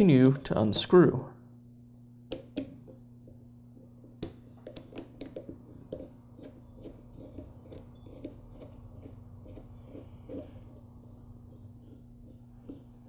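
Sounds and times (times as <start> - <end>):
steady low hum: 0.0 - 13.0
screwdriver clicking and scraping metal: 5.8 - 10.8.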